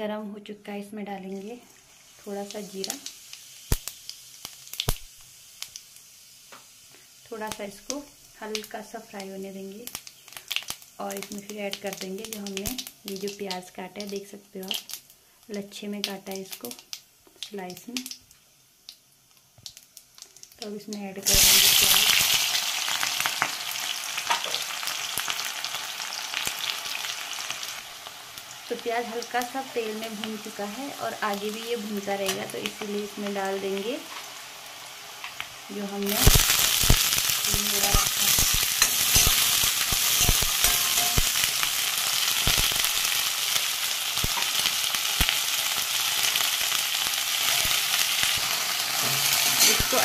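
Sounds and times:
onions sizzling in oil: 0:00.7 - 0:50.0
spatula scraping pan: 0:37.8 - 0:41.5, 0:49.0 - 0:50.0.

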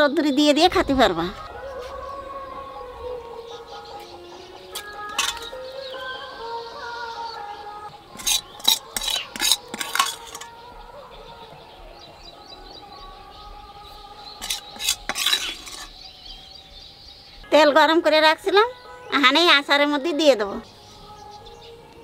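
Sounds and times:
metal spoon scraping a metal wok: 0:04.7 - 0:05.6, 0:08.1 - 0:10.6, 0:14.4 - 0:16.0.

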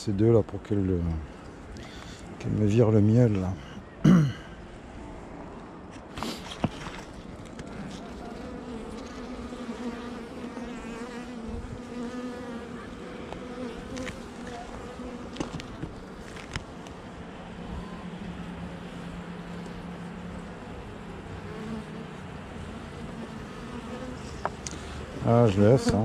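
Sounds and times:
bees buzzing: 0:06.6 - 0:26.0.

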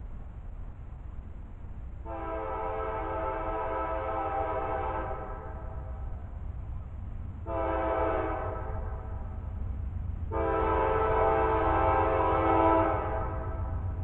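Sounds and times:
locomotive air horn chord: 0:02.0 - 0:05.7, 0:07.4 - 0:09.2, 0:10.3 - 0:13.8.

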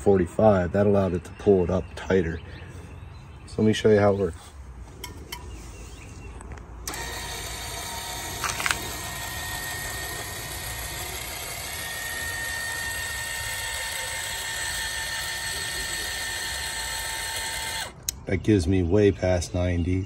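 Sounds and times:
electric actuator whining: 0:06.8 - 0:18.2
quick clicks: 0:06.8 - 0:18.2.

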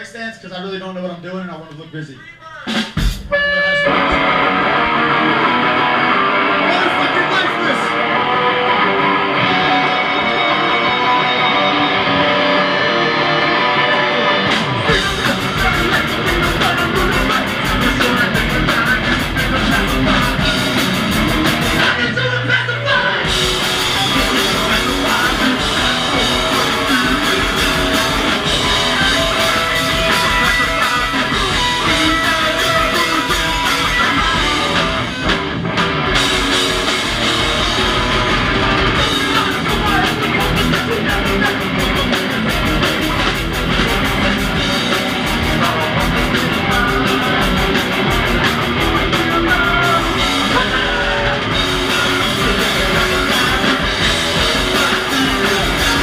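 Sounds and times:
punk band playing live: 0:02.6 - 0:56.0
electric guitar: 0:02.7 - 0:56.0.

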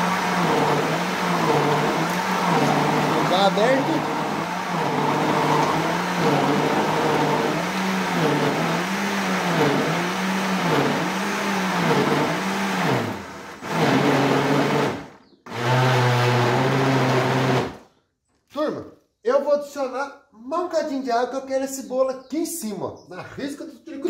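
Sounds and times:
blender motor churning batter: 0:00.0 - 0:17.8.

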